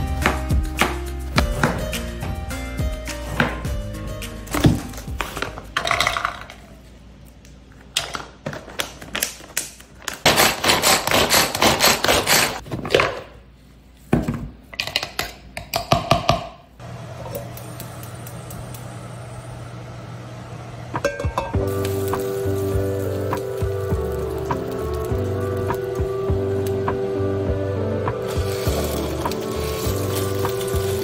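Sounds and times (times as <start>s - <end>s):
gas stove burner hum: 16.8s - 31.0s.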